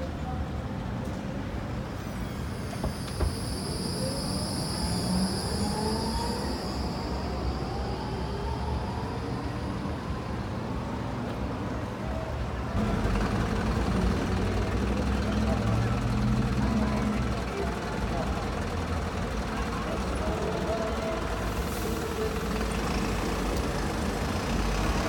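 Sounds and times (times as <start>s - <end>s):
tram low rumble: 0.0s - 25.0s
tram squealing: 1.7s - 25.0s
rising whines: 2.2s - 10.9s.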